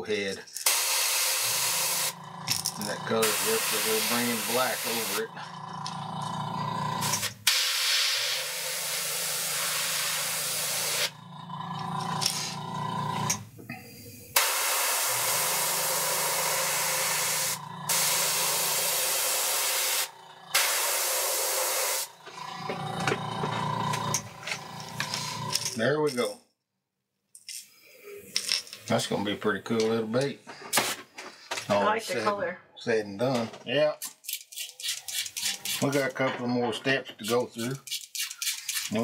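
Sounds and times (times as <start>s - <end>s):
airbrush spraying hiss: 3.2s - 5.2s, 7.2s - 11.2s, 14.3s - 22.1s.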